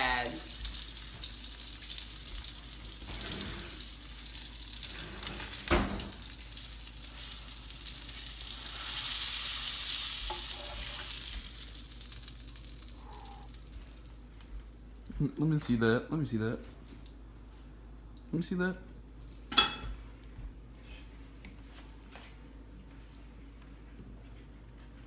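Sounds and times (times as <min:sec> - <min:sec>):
burger patty sizzling: 0:00.0 - 0:15.1
metal spatula scraping: 0:10.3 - 0:11.1.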